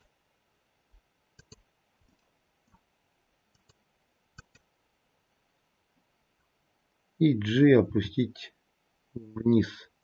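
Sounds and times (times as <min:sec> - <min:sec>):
computer mouse and keyboard clicks: 0:01.4 - 0:02.8, 0:03.5 - 0:03.8, 0:04.4 - 0:04.7.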